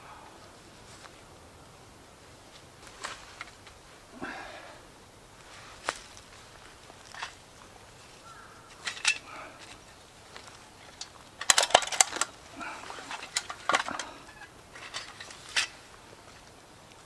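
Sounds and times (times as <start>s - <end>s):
metal pots clinking: 8.7s - 10.0s, 11.0s - 15.8s.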